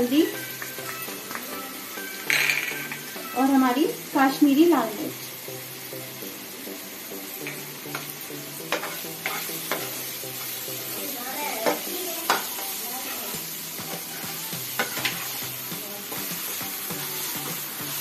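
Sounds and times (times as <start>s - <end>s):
masala sizzling in a pan: 0.0s - 18.0s
spatula scraping a pan: 7.5s - 18.0s.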